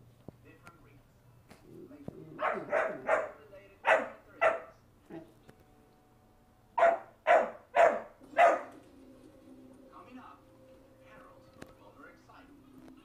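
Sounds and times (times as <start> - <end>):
dog barking: 2.4 - 5.2, 6.8 - 8.8.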